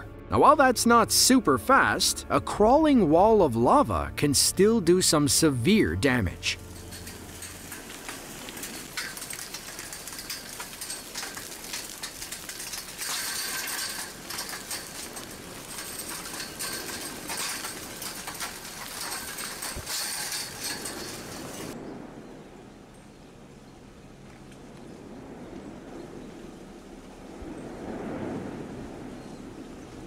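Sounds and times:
lava crust clinking and crackling: 0:04.6 - 0:21.8.

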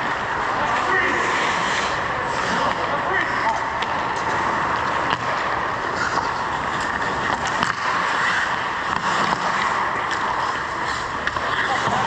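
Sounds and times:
hockey sticks and puck clicking: 0:00.0 - 0:12.0
skate blades scraping ice: 0:00.0 - 0:12.0.

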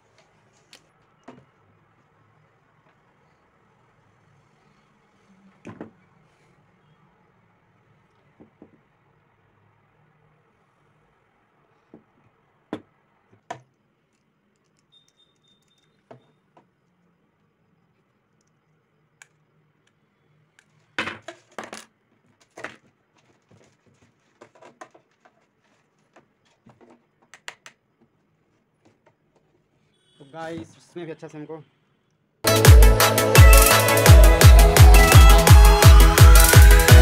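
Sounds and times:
hands handling wires and parts: 0:00.0 - 0:01.6, 0:20.6 - 0:29.7.

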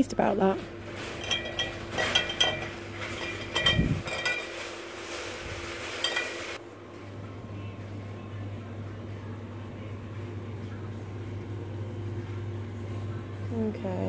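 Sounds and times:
low steady hum: 0:00.0 - 0:14.0
glass clinking: 0:01.2 - 0:04.6, 0:06.0 - 0:06.6.

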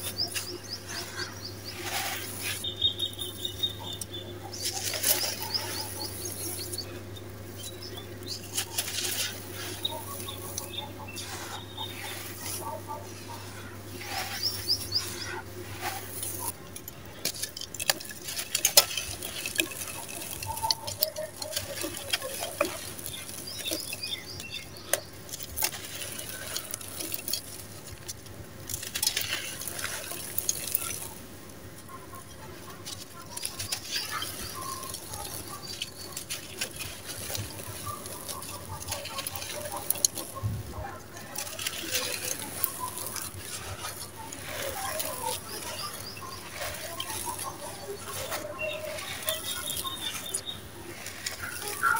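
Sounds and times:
crumbling dry cement chunks: 0:00.0 - 0:51.9
grains pattering down: 0:00.0 - 0:51.9.

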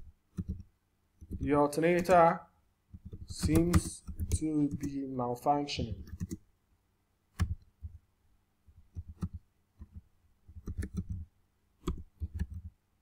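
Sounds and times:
computer keyboard typing: 0:00.3 - 0:02.3, 0:02.9 - 0:05.1, 0:06.0 - 0:06.4, 0:07.4 - 0:08.0, 0:08.8 - 0:12.7.

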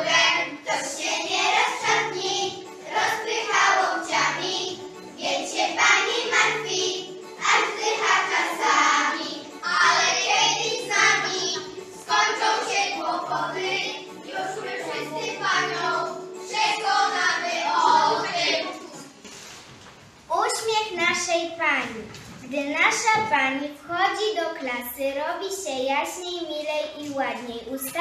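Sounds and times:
young children singing together: 0:00.0 - 0:19.2
instrumental backing track: 0:00.0 - 0:19.4.

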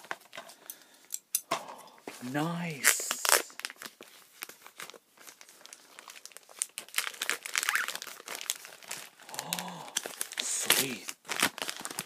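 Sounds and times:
packaging crinkling: 0:02.7 - 0:12.0.

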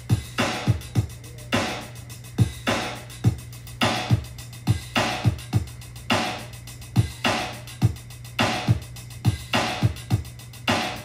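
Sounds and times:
drum machine kicks: 0:00.0 - 0:11.0
snare or clap hits: 0:00.4 - 0:00.8, 0:02.7 - 0:03.1, 0:03.8 - 0:04.2, 0:05.0 - 0:05.4, 0:06.1 - 0:06.5, 0:07.2 - 0:07.6, 0:08.4 - 0:10.1, 0:10.7 - 0:11.0.

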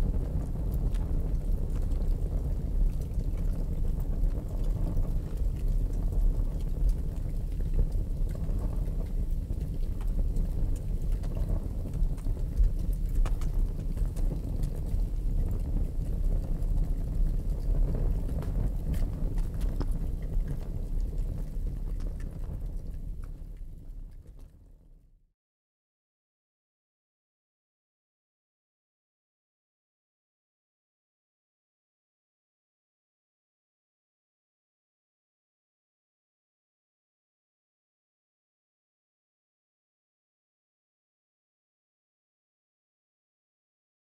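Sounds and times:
fire flames rushing: 0:00.0 - 0:24.6
fire crackling: 0:00.0 - 0:24.9.

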